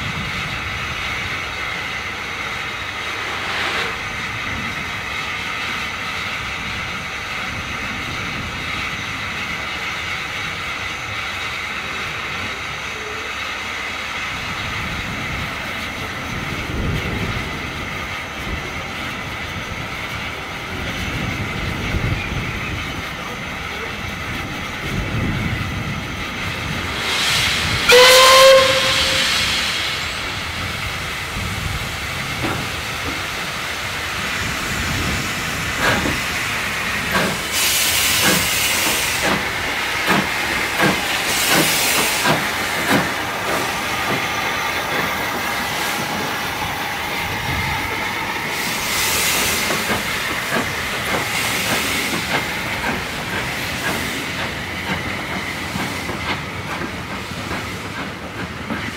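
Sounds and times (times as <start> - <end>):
steady steam hiss: 0.0 - 58.9
bursts of steam hiss: 0.1 - 22.5, 24.6 - 58.9
steam locomotive whistle: 27.0 - 30.1.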